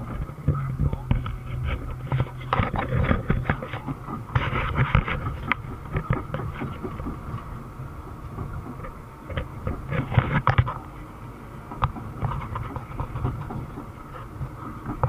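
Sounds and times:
diesel engine rumbling: 0.0 - 15.0.

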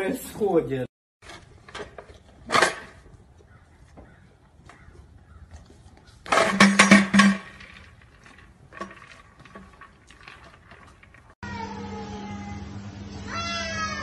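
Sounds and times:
young goat bleating: 13.3 - 14.0.

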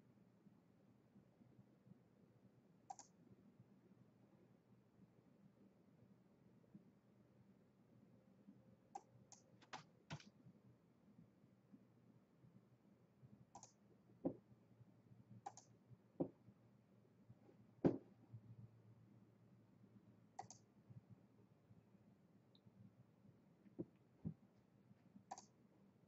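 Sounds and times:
mouse and keyboard clicking: 2.9 - 3.2, 9.0 - 10.3, 13.6 - 13.8, 15.4 - 15.7, 20.4 - 20.6, 25.3 - 25.6.

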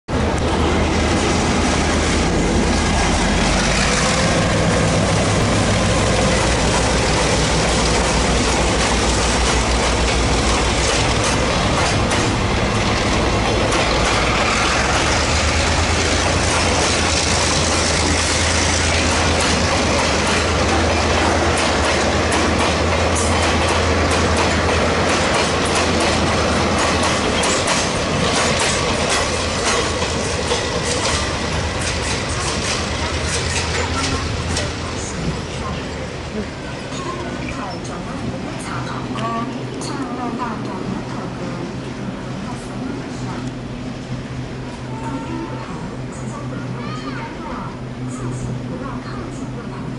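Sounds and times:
diesel locomotive running: 0.1 - 49.9
wheels clattering over rail joints: 2.2 - 36.0.

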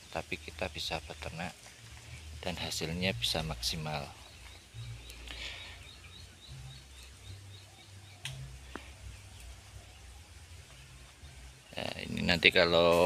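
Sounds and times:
bird chirping: 0.0 - 13.0
low rumble: 1.9 - 11.7.

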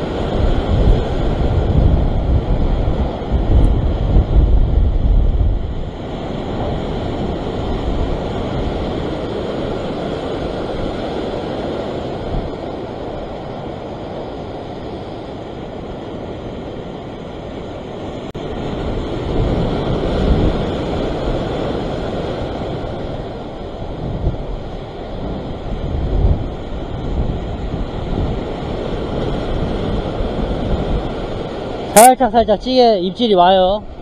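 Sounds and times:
wind buffeting microphone: 0.0 - 34.0
surf breaking over rocks: 17.6 - 34.0.

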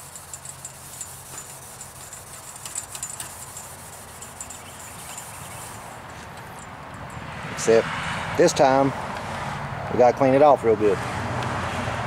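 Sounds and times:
scuff pad rubbing on metal: 0.0 - 6.6.

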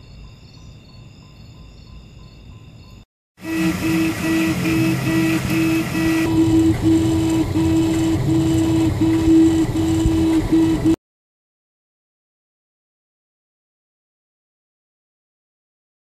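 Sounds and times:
stepper motors whining: 3.4 - 11.0
steady whir: 3.5 - 11.0.

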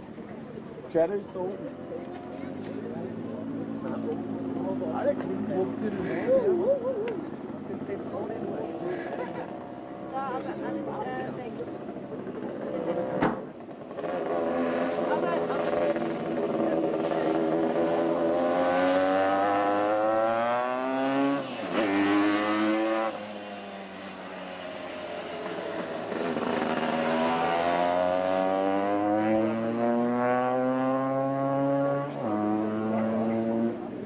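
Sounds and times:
scooter engine accelerating: 1.6 - 34.0.

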